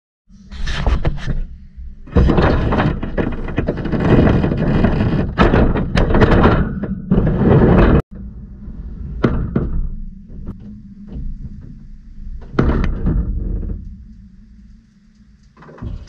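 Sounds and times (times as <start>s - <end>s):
knocks and thunks: 0.9s - 8.3s, 9.2s - 11.8s, 12.4s - 14.0s, 15.6s - 16.0s.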